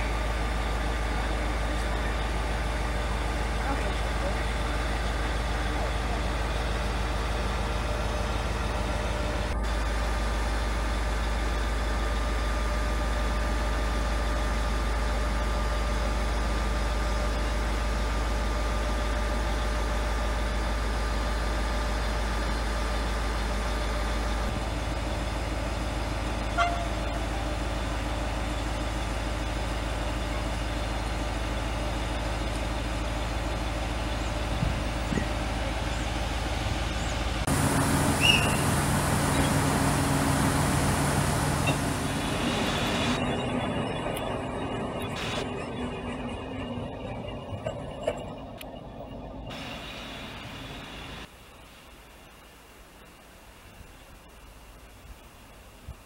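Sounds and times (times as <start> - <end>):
railcar engine hum: 0.0 - 56.0
train horn toot: 26.5 - 27.3.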